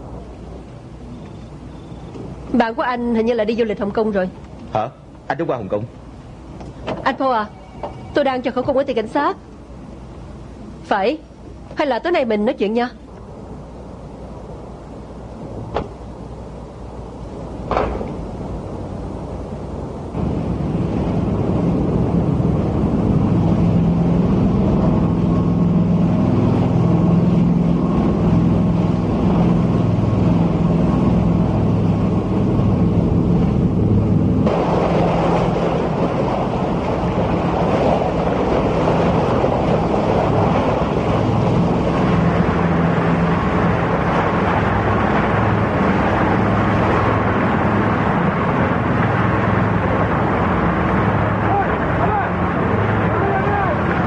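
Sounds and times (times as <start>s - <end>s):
boat engine droning: 0.0s - 54.0s
water rushing along hull: 0.0s - 54.0s.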